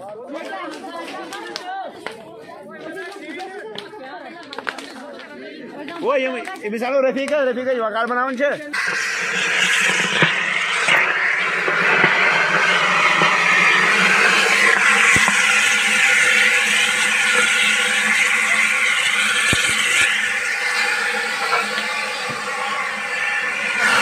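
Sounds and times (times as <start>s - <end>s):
fire crackling and popping: 8.8s - 23.6s
fire roaring: 8.8s - 24.0s.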